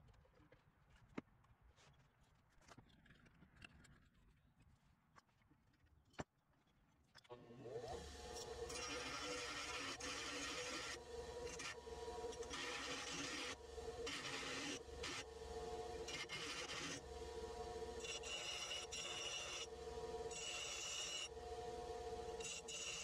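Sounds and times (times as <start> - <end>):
bench grinder motor hum: 7.3 - 23.0
metal grinding on wheel: 8.3 - 21.7.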